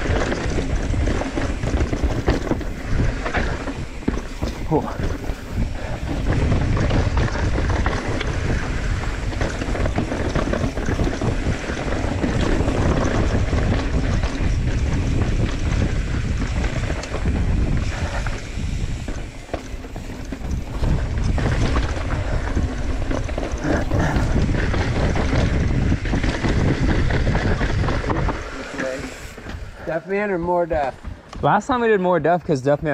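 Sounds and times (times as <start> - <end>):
wind buffeting microphone: 0.0 - 31.8
tyres rumbling over dirt: 0.0 - 31.9
bike rattling and knocking: 0.0 - 32.9.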